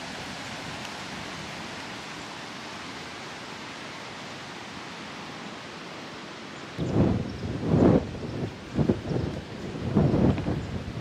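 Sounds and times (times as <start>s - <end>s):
strong wind rushing: 6.8s - 11.0s.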